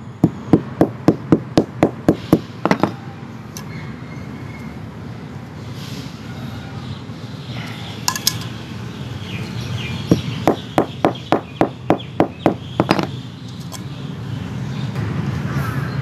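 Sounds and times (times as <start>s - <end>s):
hammer striking on concrete: 0.2s - 3.0s, 10.1s - 13.1s.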